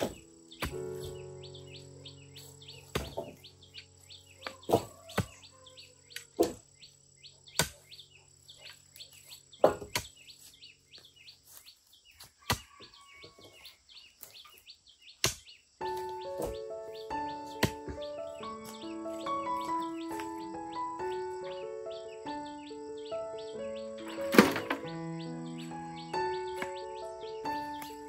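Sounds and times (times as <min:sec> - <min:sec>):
hoe chopping into earth: 0:00.0 - 0:01.2, 0:02.8 - 0:03.4, 0:04.4 - 0:05.4, 0:07.6 - 0:08.0, 0:09.6 - 0:10.3, 0:15.2 - 0:15.6
birds chirping: 0:00.0 - 0:28.0.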